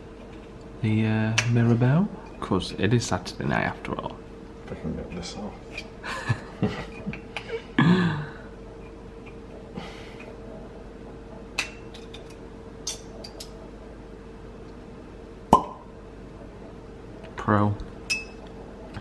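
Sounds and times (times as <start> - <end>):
faint steady hum: 0.0 - 19.0
cork popping from bottle: 15.5 - 15.9.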